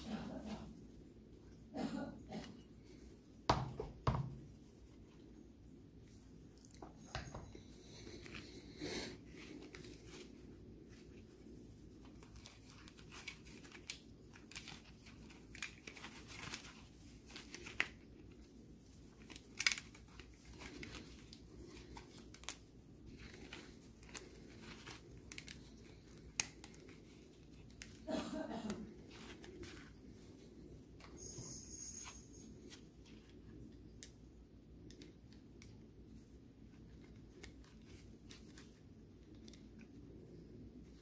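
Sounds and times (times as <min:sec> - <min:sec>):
plastic parts rustling: 0:09.2 - 0:28.1.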